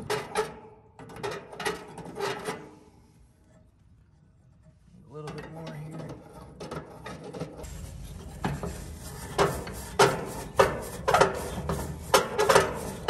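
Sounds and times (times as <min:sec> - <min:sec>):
abrasive pad scraping copper pipe: 0:07.6 - 0:13.0.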